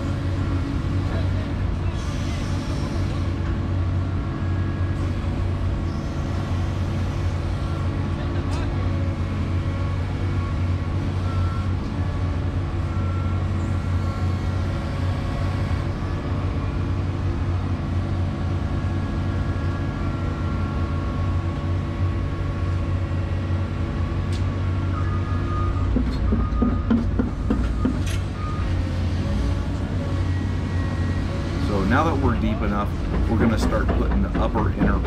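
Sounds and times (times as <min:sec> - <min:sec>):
excavator engine running: 0:00.0 - 0:35.0
hydraulics working: 0:23.4 - 0:35.0
sharp knocks: 0:33.1 - 0:35.0.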